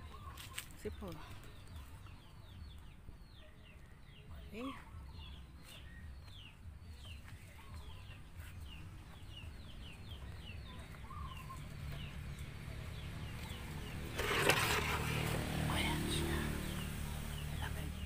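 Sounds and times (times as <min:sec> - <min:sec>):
chicks peeping: 0:00.0 - 0:14.2.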